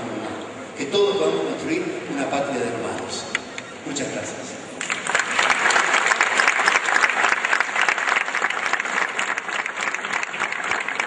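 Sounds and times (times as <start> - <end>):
crowd applauding: 4.8 - 11.0.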